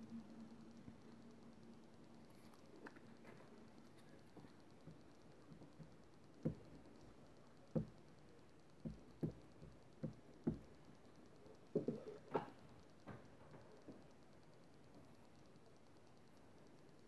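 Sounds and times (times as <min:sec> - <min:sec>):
ink pad knocking on stamp: 0:08.8 - 0:10.7.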